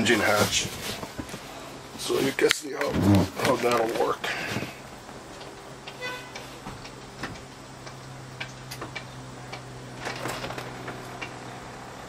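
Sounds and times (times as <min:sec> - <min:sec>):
electric motor humming: 0:05.3 - 0:12.0.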